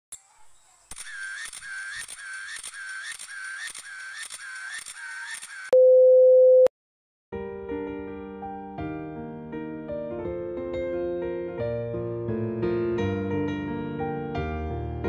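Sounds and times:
electronic ticks with chirping tones: 0:00.9 - 0:05.8
soft electric piano music: 0:07.4 - 0:15.0.

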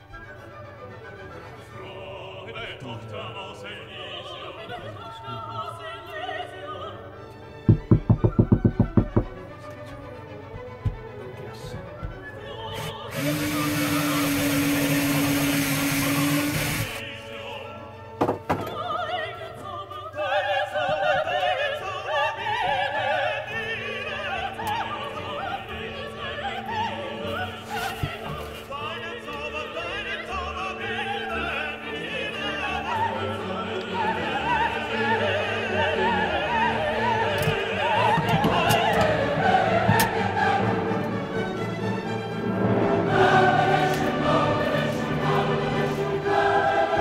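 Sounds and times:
choir-like classical singing: 0:00.0 - 0:08.5, 0:09.9 - 0:47.0.

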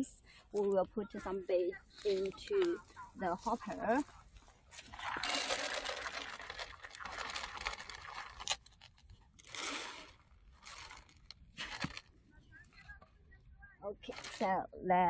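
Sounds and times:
dry grains pouring into plastic hopper: 0:04.9 - 0:12.0.

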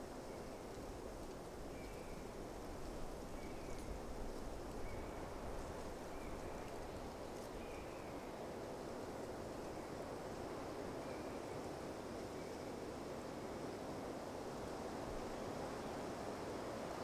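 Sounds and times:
sea and wind wash: 0:11.7 - 0:17.0.

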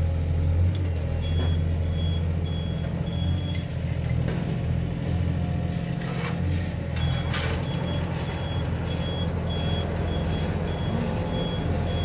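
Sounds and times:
reversing alarm beeping: 0:01.2 - 0:03.8, 0:07.0 - 0:12.0.

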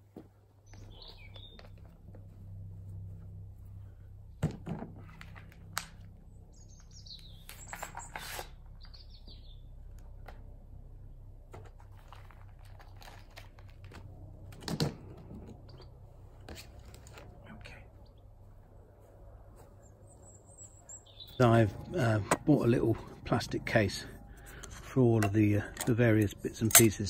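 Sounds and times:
birds chirping: 0:00.0 - 0:04.4, 0:05.1 - 0:10.2, 0:15.0 - 0:27.0.

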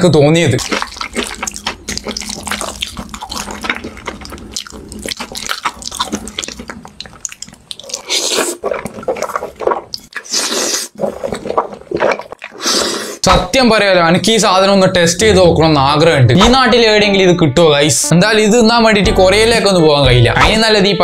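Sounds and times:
sticky wet noodle chewing clicks: 0:00.5 - 0:10.2
noodle slurping: 0:00.6 - 0:13.2.

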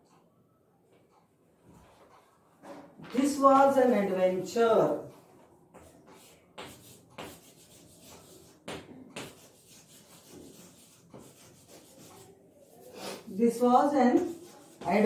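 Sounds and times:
chalk scraping on blackboard: 0:05.8 - 0:13.3, 0:14.1 - 0:15.0.

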